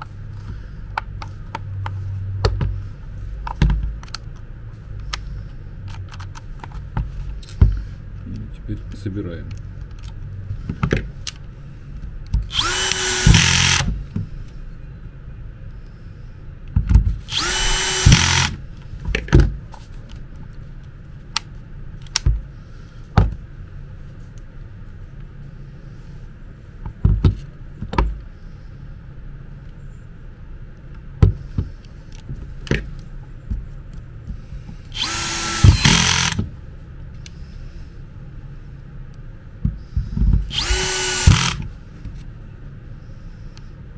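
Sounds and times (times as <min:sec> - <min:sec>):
cordless drill motor spinning: 0:12.5 - 0:14.0, 0:17.2 - 0:18.6, 0:34.9 - 0:36.5, 0:40.5 - 0:41.7.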